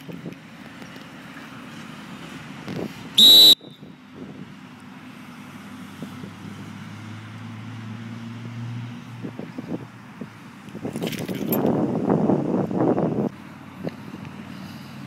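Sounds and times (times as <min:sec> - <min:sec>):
dog whistle blast: 0:03.2 - 0:03.8.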